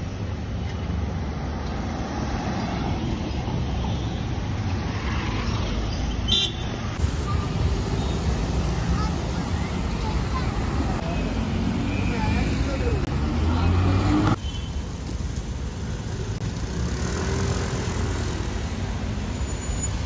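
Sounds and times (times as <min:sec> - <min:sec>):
cars driving past: 0:01.0 - 0:14.4, 0:16.0 - 0:20.0.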